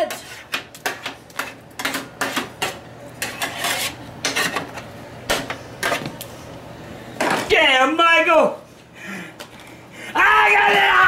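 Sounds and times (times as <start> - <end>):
metal utensil scraping a pan: 0.0 - 4.8.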